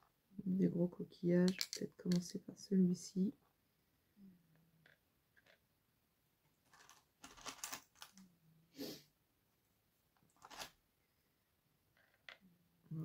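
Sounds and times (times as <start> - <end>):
seashells clicking on wood: 1.5 - 2.3.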